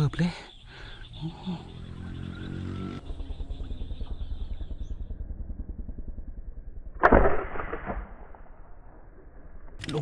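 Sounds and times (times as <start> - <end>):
fast low pulsing: 0.7 - 9.8
speargun firing crack: 6.9 - 9.0.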